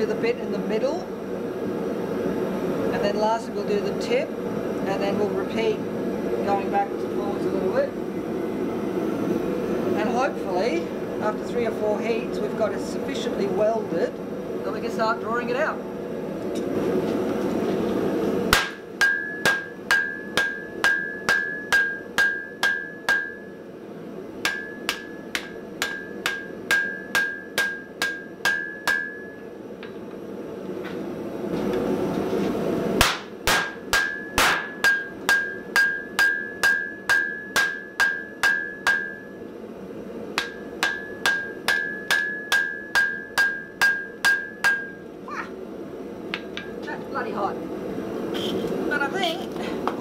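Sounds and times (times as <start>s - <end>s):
hammer striking steel on anvil: 18.5s - 23.6s, 24.4s - 29.5s, 33.0s - 39.4s, 40.4s - 45.0s.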